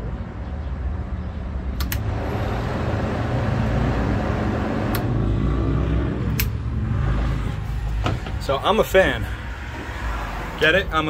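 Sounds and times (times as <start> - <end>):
fan switch clicking: 1.8 - 2.0, 6.3 - 6.6
electric fan running: 1.9 - 5.2.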